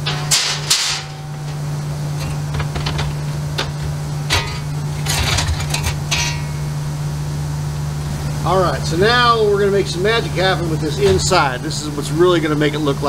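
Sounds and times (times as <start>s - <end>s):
sharp metal knocks: 0.0s - 6.8s
sheet metal scraping and clinking: 0.0s - 6.8s
steady low hum: 0.0s - 13.0s.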